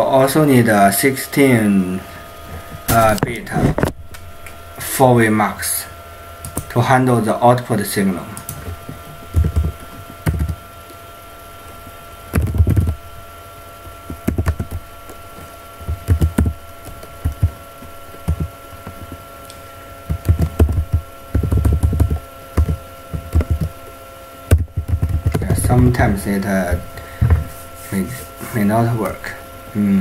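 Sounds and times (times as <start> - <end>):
faint electrical hum: 0.0 - 30.0
typing on keyboard: 9.3 - 10.6, 12.4 - 13.0, 14.2 - 14.8, 15.9 - 17.5, 20.1 - 23.7, 24.5 - 25.6.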